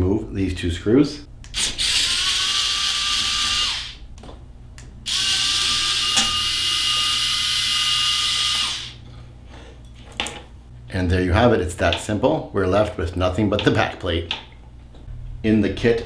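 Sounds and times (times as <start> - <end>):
electric screwdriver whining: 1.5 - 4.0, 5.1 - 9.0.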